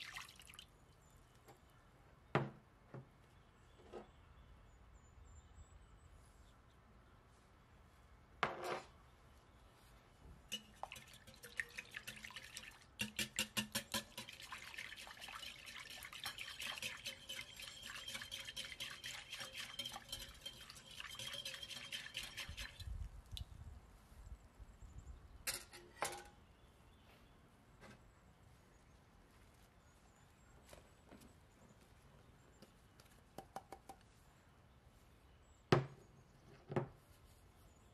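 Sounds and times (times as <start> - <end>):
whisk beating liquid in glass bowl: 10.5 - 23.0.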